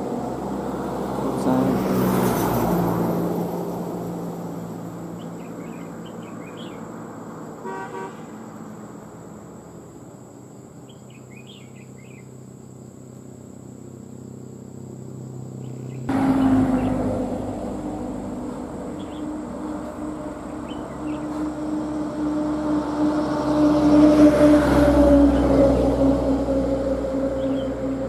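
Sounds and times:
vehicle engine hum: 0:00.0 - 0:28.0
birds chirping: 0:05.0 - 0:08.7, 0:09.6 - 0:17.4, 0:18.5 - 0:21.7, 0:27.3 - 0:27.9
short horn toot: 0:07.6 - 0:08.3.

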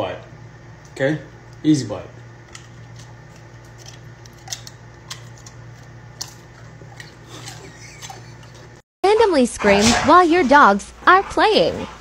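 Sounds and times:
low room hum: 0:00.0 - 0:12.0
dog crunching food: 0:02.4 - 0:08.8.

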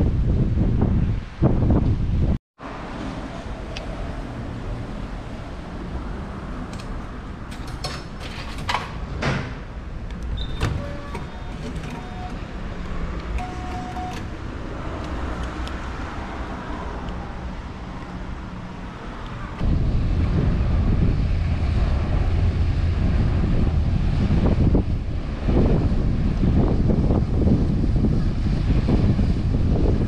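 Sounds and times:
vending machine clicks and clatters: 0:07.5 - 0:09.5, 0:10.6 - 0:12.4
short electronic beeps: 0:10.4 - 0:12.4, 0:13.4 - 0:14.3
steady low hum: 0:16.8 - 0:30.0.

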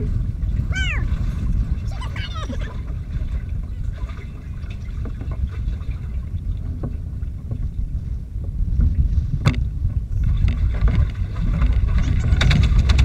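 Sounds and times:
water against boat hull: 0:00.0 - 0:13.0
wind on microphone: 0:00.0 - 0:13.0
knocks on boat: 0:02.8 - 0:07.8, 0:08.4 - 0:13.0.

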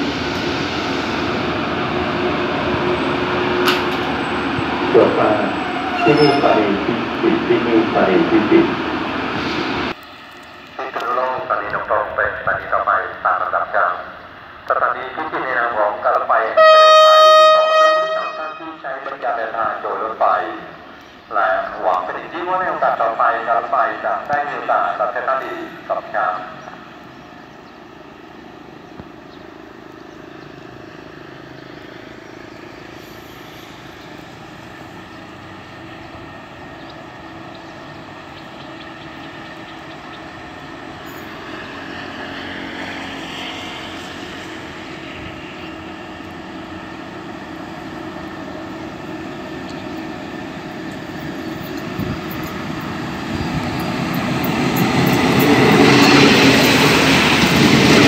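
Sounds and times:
diesel train approaching: 0:00.0 - 0:58.0.

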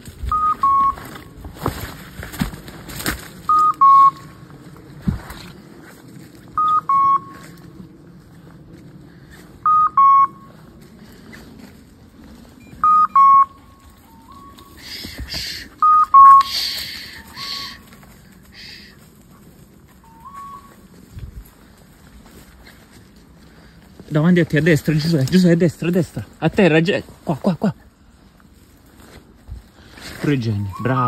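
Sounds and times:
footsteps through dry leaves: 0:00.0 - 0:15.8, 0:16.5 - 0:31.0
two-note electronic beep: 0:09.7 - 0:10.4, 0:12.6 - 0:14.5.

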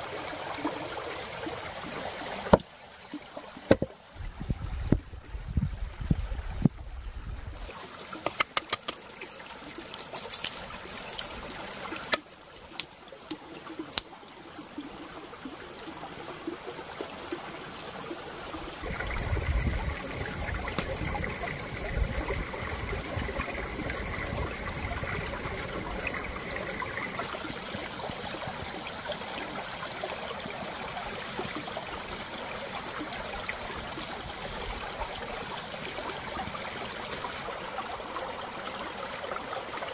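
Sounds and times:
stream babbling over rocks: 0:00.0 - 0:05.4, 0:07.6 - 0:39.9
sharp knocks and clicks: 0:03.7 - 0:04.0.

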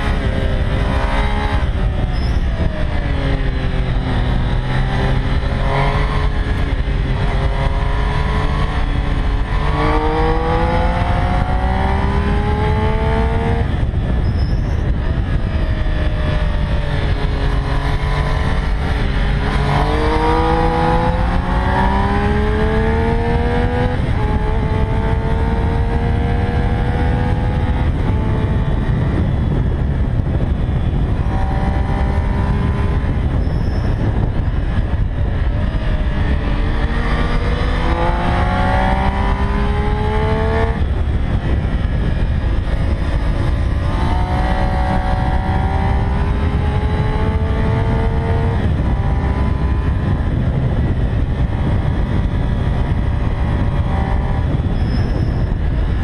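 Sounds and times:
motorcycle engine accelerating: 0:00.0 - 0:56.0
wind rush on camera: 0:00.0 - 0:56.0.

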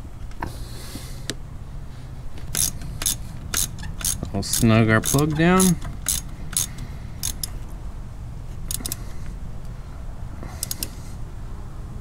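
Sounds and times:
socket ratchet clicking: 0:02.5 - 0:07.6, 0:08.7 - 0:09.0, 0:10.6 - 0:10.9.

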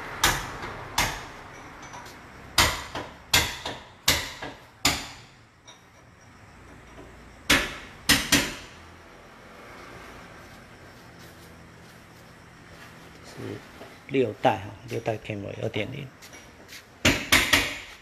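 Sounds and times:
sharp ringing knocks and clanks: 0:00.1 - 0:08.8, 0:16.2 - 0:18.0.

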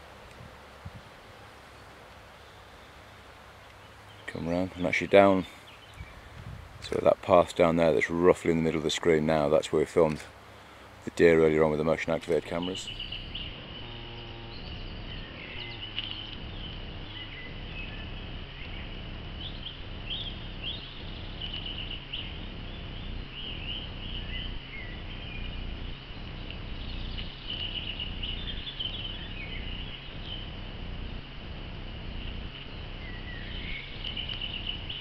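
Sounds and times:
wind rumble on microphone: 0:00.0 - 0:01.4, 0:05.9 - 0:07.3, 0:12.4 - 0:35.0
small birds chirping: 0:00.0 - 0:35.0
steady high-pitched drone: 0:12.5 - 0:35.0.

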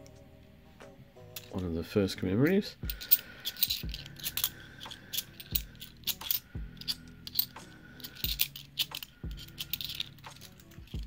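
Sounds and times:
coins clinking: 0:01.3 - 0:01.7, 0:02.8 - 0:11.0.

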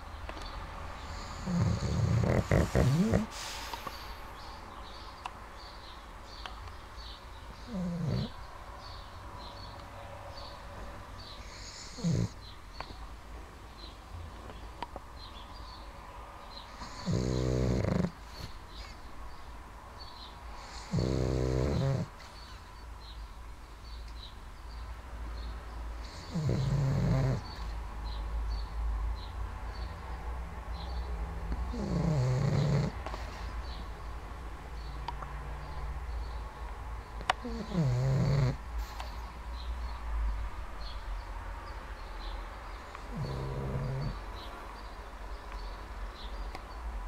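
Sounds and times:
dog snoring: 0:01.0 - 0:04.2, 0:07.6 - 0:08.4, 0:11.3 - 0:12.4, 0:16.7 - 0:18.5, 0:20.6 - 0:22.2, 0:26.0 - 0:27.7, 0:31.5 - 0:33.0, 0:37.4 - 0:39.0, 0:43.0 - 0:44.5
dog breathing: 0:01.0 - 0:04.5, 0:07.6 - 0:08.4, 0:11.2 - 0:12.4, 0:16.5 - 0:19.0, 0:20.5 - 0:22.4, 0:26.0 - 0:27.7, 0:31.6 - 0:33.8, 0:37.4 - 0:39.4, 0:42.8 - 0:44.5.

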